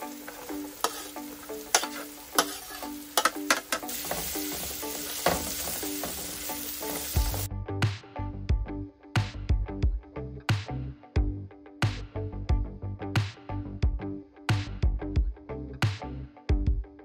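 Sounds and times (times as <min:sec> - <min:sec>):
food sizzling in a pot: 0:00.0 - 0:07.5
plucked background music: 0:00.0 - 0:17.0
spatula knocking and scraping pot: 0:00.3 - 0:06.4.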